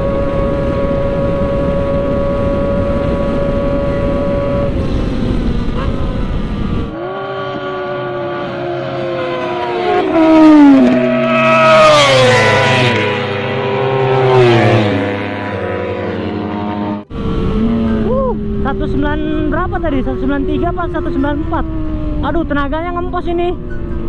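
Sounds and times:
wind rush: 0.0s - 7.0s, 17.0s - 24.0s
motorcycle engine at high revs: 0.0s - 24.0s
sportbike passing at speed: 0.0s - 24.0s.

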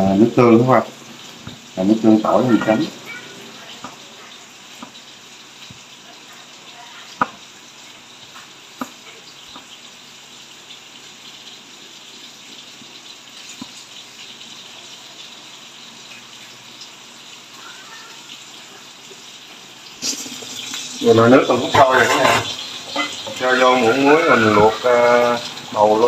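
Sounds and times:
fish frying in oil: 0.0s - 26.0s.

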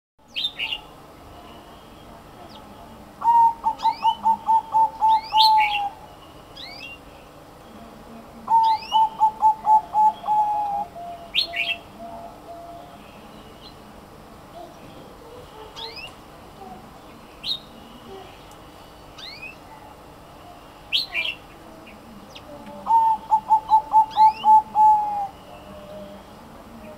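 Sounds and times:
dove cooing: 3.2s - 6.1s, 8.4s - 13.2s, 22.6s - 26.9s.

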